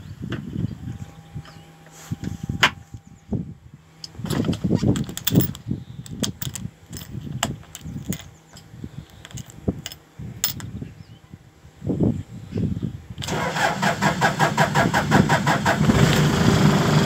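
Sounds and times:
low rumbling handling noise: 0:00.0 - 0:11.0
keyring jangling: 0:05.0 - 0:08.3, 0:09.1 - 0:10.6.

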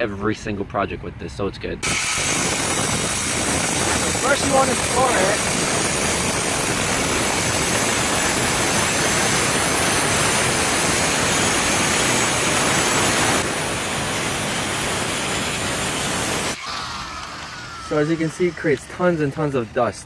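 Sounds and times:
angle grinder cutting stone: 0:01.8 - 0:16.8.

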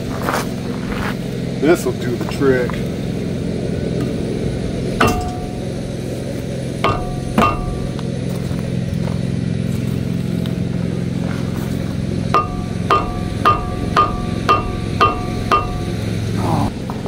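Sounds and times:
steady low hum: 0:00.0 - 0:17.0
metallic clangs with ring: 0:05.0 - 0:05.8, 0:06.8 - 0:08.0, 0:12.4 - 0:16.1.

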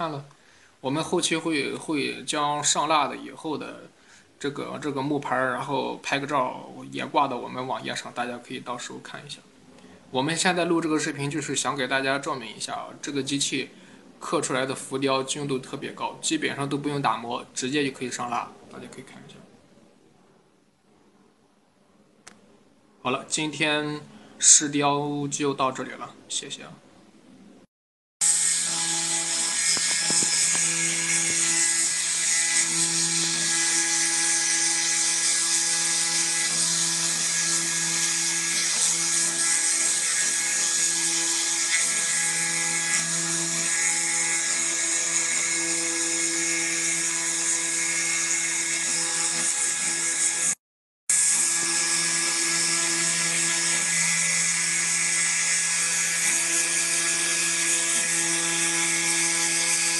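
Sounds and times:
engraving machine spindle whine: 0:28.2 - 0:59.9.

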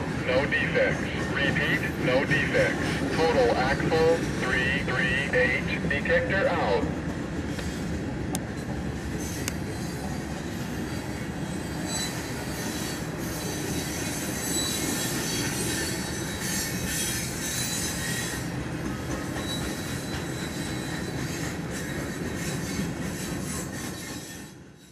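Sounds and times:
train wheels rumbling over rail joints: 0:06.6 - 0:24.8
high-pitched wheel squeal: 0:10.9 - 0:18.5.

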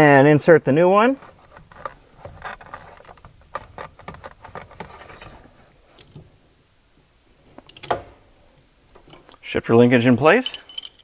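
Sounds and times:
metal clicks and scraping: 0:01.2 - 0:06.3, 0:07.5 - 0:08.1.

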